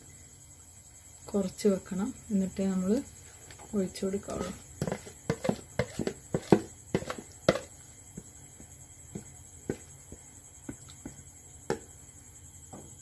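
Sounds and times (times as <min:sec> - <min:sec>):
spoon scraping and knocking bowl: 0:04.2 - 0:07.8.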